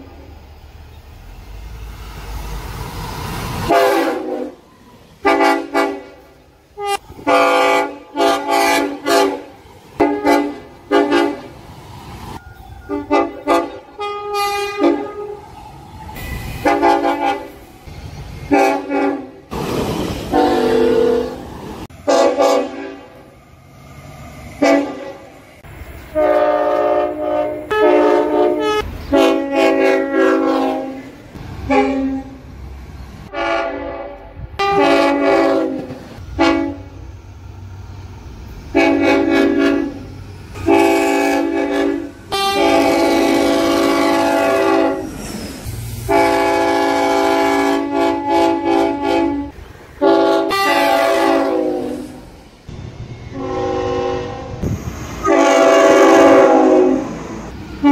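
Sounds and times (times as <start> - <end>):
train horn blasts: 3.7 - 11.5, 12.8 - 15.5, 16.2 - 17.6, 18.5 - 19.5, 20.3 - 21.4, 22.0 - 23.3, 24.6 - 25.4, 26.2 - 32.4, 33.3 - 37.0, 38.7 - 45.1, 46.1 - 52.2, 53.3 - 57.9
train running rumble: 5.2 - 57.9.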